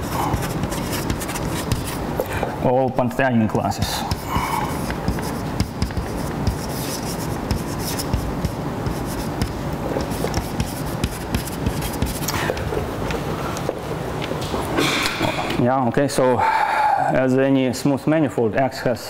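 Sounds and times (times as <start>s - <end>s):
chalk scratching on blackboard: 0.0s - 2.0s, 3.8s - 12.3s.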